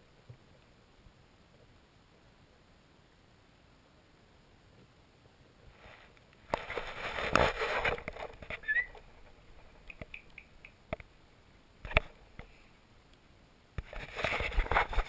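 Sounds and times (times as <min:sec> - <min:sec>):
short high squeak: 0:08.6 - 0:09.0.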